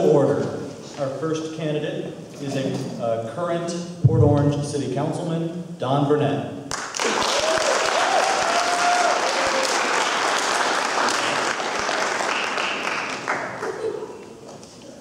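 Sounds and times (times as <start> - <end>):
audience applauding: 6.7 - 14.1.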